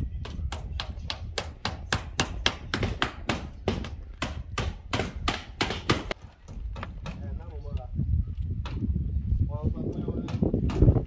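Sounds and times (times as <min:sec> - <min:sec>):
hammer nailing metal roof tiles: 0:00.2 - 0:07.3.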